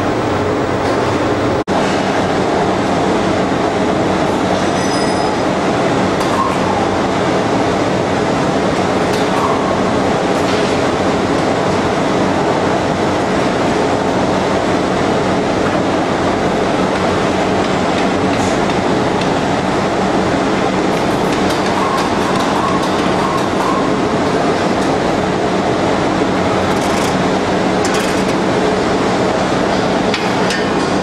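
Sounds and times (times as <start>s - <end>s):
lathe running: 25.0s - 29.6s.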